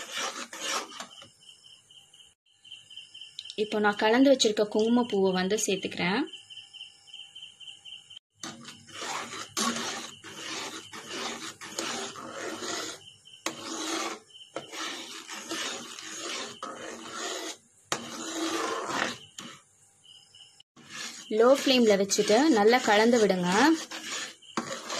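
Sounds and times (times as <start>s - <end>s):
spatula scraping thick mixture: 0.0s - 1.3s, 8.4s - 19.6s, 20.8s - 24.9s.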